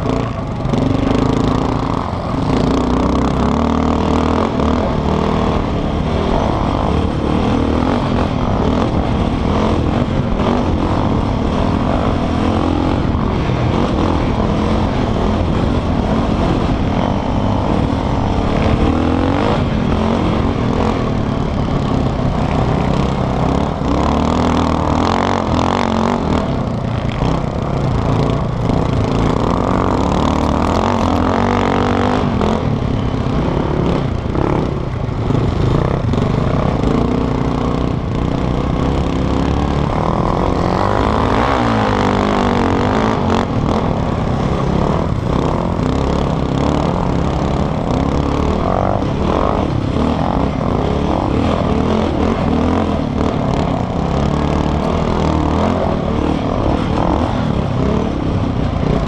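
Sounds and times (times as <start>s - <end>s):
quad engine revving: 0.0s - 59.0s.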